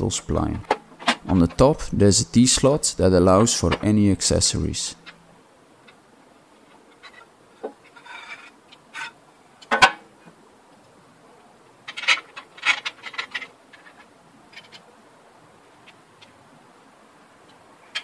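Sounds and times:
metal parts scraping and clicking: 0:06.9 - 0:09.2, 0:11.8 - 0:14.9.

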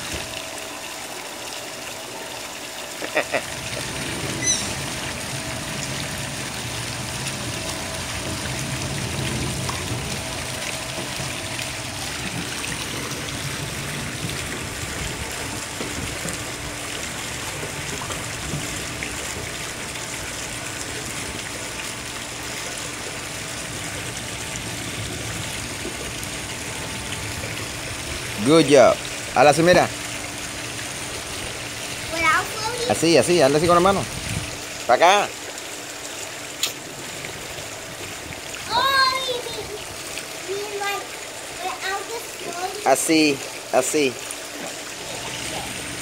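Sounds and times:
water trickling into a pool: 0:00.0 - 0:46.0
short high squeak: 0:04.4 - 0:04.8.

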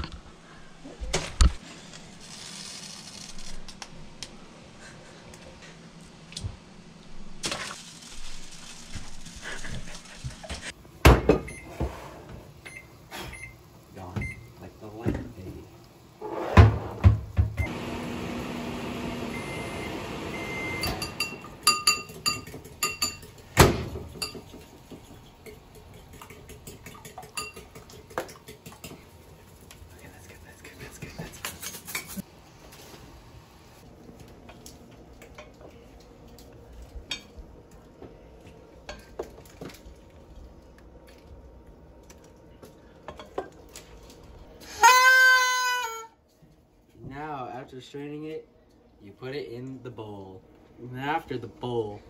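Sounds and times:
dishes and utensils clinking: 0:20.8 - 0:29.1.

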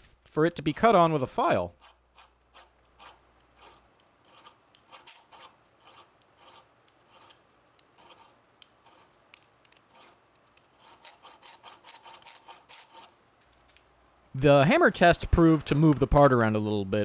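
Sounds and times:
hand file rasping on metal bar: 0:01.7 - 0:09.2, 0:09.8 - 0:13.1.

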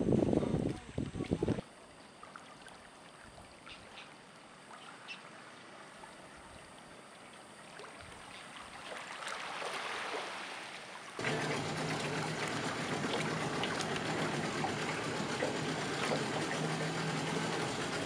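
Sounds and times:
small waves lapping on sand: 0:07.6 - 0:18.0.

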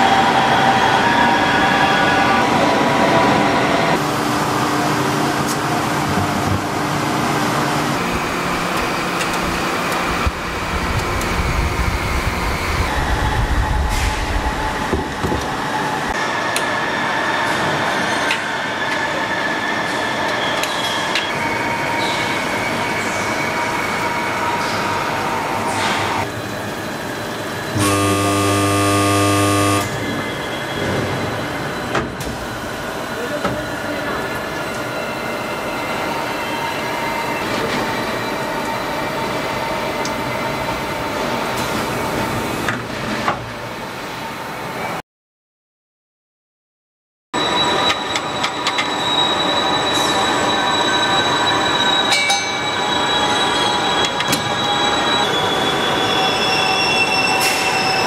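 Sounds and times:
factory machinery running: 0:03.9 - 0:35.7
loud buzzing tone: 0:27.8 - 0:30.2.

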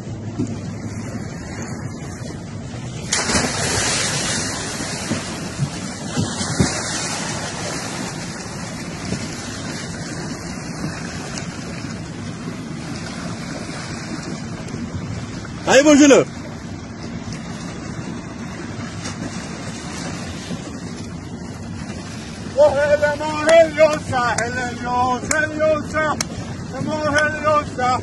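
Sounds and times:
sea water splashing: 0:00.0 - 0:28.0
wind buffeting microphone: 0:00.0 - 0:28.0
swimmer splashing into water: 0:02.8 - 0:14.7.

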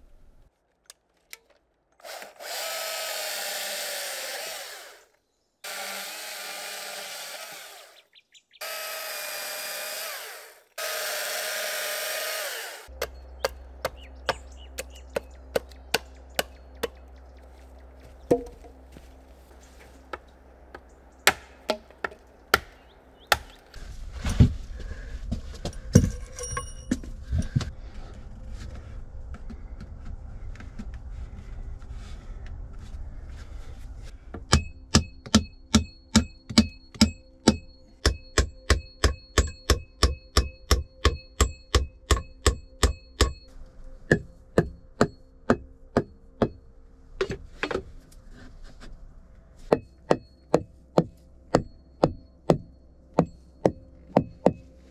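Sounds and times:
hammering on logs: 0:10.8 - 0:17.0, 0:18.3 - 0:18.7, 0:20.1 - 0:23.7, 0:34.4 - 0:43.5, 0:44.1 - 0:46.6, 0:49.7 - 0:54.7.

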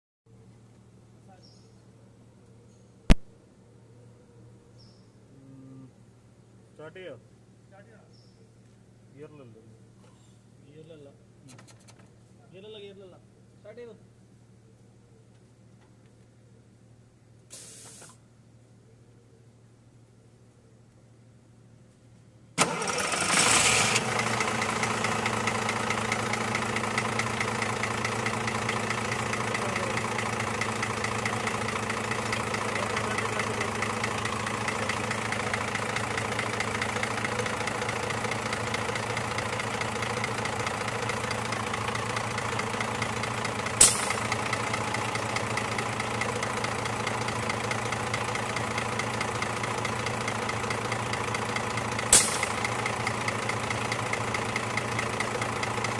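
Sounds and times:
truck diesel engine idling: 0:22.6 - 0:55.9.

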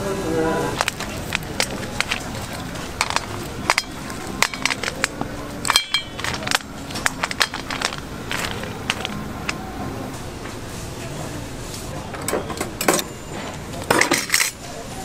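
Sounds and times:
low background hum: 0:00.0 - 0:15.0
sticks clicking on stones: 0:00.8 - 0:09.6.

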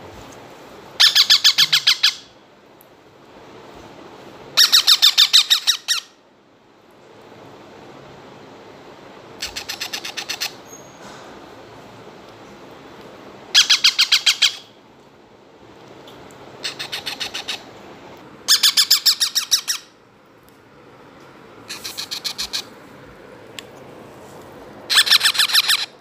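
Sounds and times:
baby parrots squawking: 0:01.0 - 0:02.3, 0:04.6 - 0:06.1, 0:09.4 - 0:10.6, 0:13.6 - 0:14.6, 0:16.6 - 0:17.7, 0:18.5 - 0:19.9, 0:21.7 - 0:22.7, 0:24.9 - 0:26.0.

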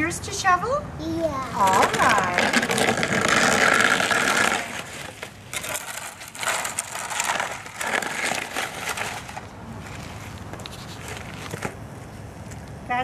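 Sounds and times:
snow shovels scraping ice: 0:01.5 - 0:11.5.

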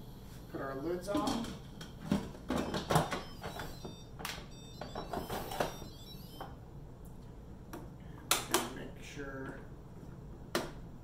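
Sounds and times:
short high tones: 0:02.6 - 0:06.5.

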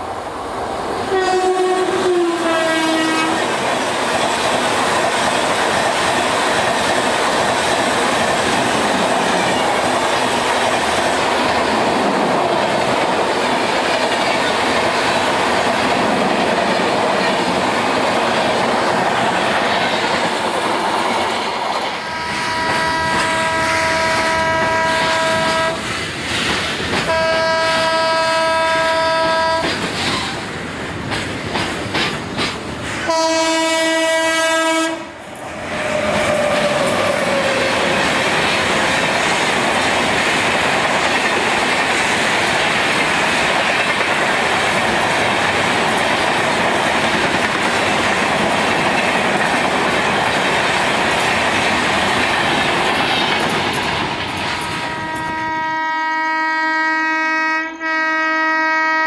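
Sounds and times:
train coaches rushing past: 0:00.0 - 0:56.9
locomotive horn blasts: 0:01.1 - 0:03.5, 0:22.0 - 0:25.8, 0:27.1 - 0:29.7, 0:33.0 - 0:35.1, 0:54.8 - 0:59.0.

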